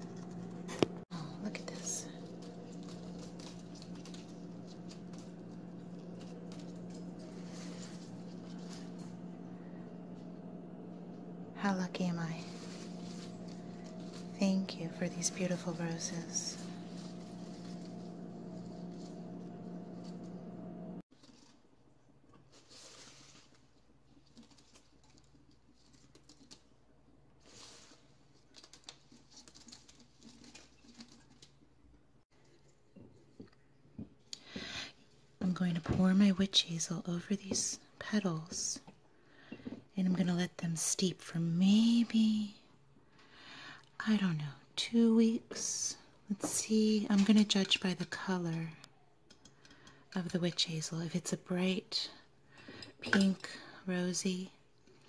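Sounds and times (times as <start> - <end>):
steady low hum: 0.0 - 21.0
rose petals rustling in a bowl: 1.0 - 9.7, 11.6 - 20.5, 22.4 - 26.8, 27.4 - 31.6.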